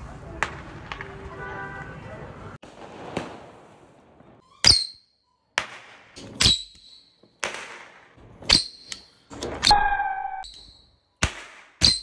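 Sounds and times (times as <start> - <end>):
firecracker bangs: 2.6 - 4.3.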